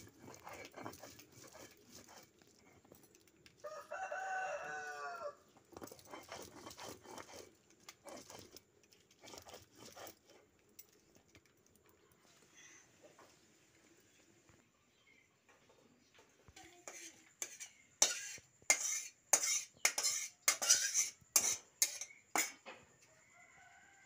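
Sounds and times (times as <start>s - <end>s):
grinding stone scraping on stone: 0.0s - 3.4s, 5.5s - 11.0s, 16.8s - 22.6s
rooster crowing: 3.6s - 5.5s, 23.0s - 24.0s.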